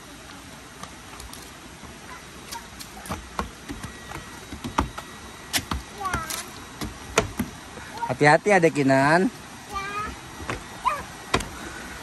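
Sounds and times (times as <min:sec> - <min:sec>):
footsteps on wooden steps: 0:02.9 - 0:08.0, 0:10.4 - 0:11.7.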